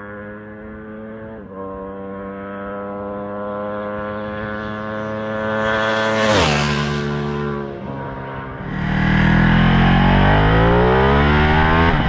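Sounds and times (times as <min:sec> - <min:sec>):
motorcycle accelerating past: 0:00.0 - 0:12.0.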